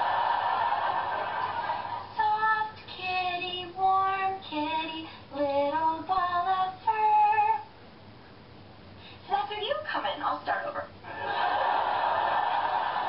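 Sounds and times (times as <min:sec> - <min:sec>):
young woman singing unaccompanied: 0:02.2 - 0:07.7.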